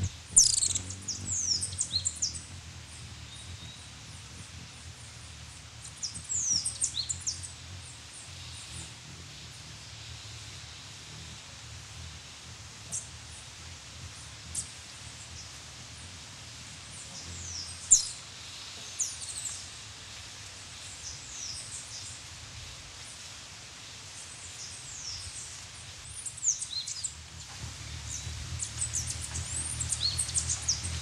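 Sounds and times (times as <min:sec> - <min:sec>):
hummingbird chip calls: 0:00.0 - 0:19.5, 0:26.4 - 0:31.0
hummingbird wingbeat hum: 0:00.0 - 0:23.2, 0:24.1 - 0:31.0.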